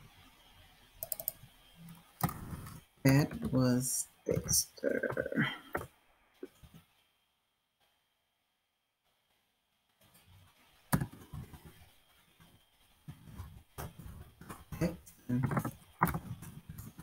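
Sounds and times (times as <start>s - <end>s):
typing on computer keyboard: 1.0s - 1.4s.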